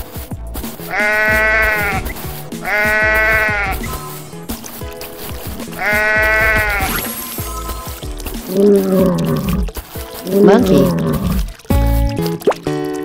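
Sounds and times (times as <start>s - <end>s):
background music with steady beat: 0.0s - 13.0s
sheep bleating: 0.9s - 4.2s, 5.6s - 7.1s, 8.5s - 9.6s.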